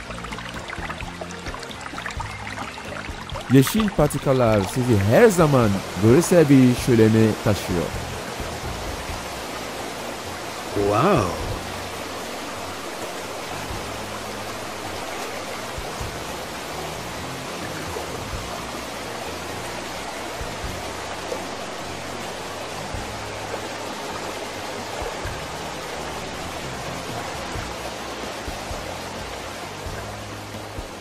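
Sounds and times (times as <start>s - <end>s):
soft background music: 0.0s - 31.0s
waterfall rushing over rocks: 0.0s - 31.0s.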